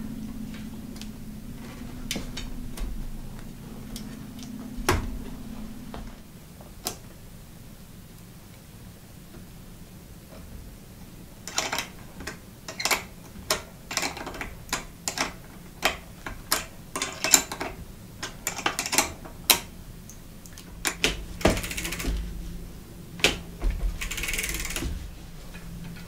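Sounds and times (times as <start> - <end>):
wrench metal clicks: 20.5 - 22.3.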